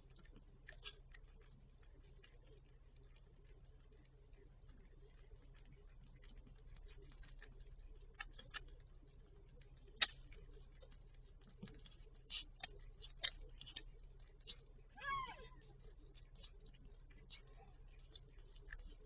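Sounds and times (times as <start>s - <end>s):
cat licking kitten wet clicks: 0.0s - 19.0s
low steady hum: 0.0s - 19.0s.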